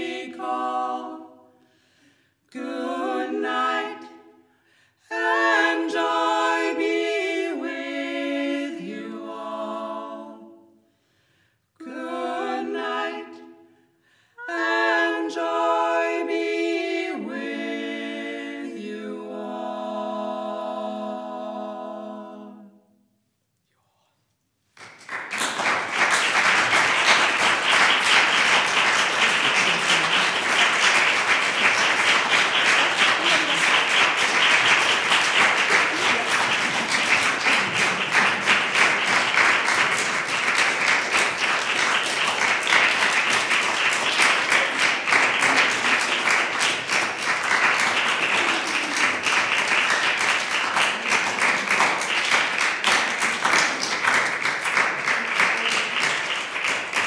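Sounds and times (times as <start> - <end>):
group singing a cappella: 0.0 - 1.7, 2.4 - 10.8, 11.8 - 13.7, 14.4 - 23.0, 26.4 - 55.2
audience applause: 24.8 - 57.0.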